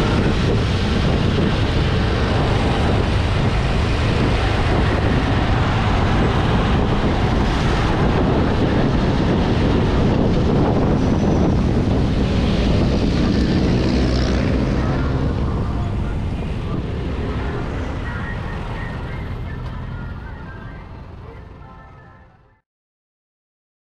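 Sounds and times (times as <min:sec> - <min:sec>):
wind rushing over microphone: 0:00.0 - 0:20.9
traffic engine noise: 0:00.0 - 0:22.6.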